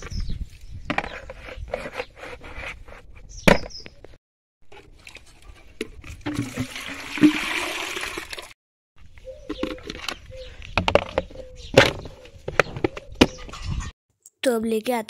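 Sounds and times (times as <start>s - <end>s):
water pouring into container: 6.1s - 8.6s.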